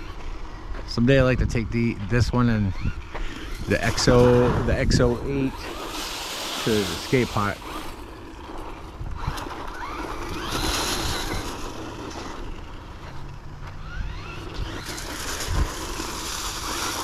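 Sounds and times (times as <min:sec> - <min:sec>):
electric motor whining: 0:02.4 - 0:17.0
tyres hissing over asphalt: 0:05.3 - 0:08.1.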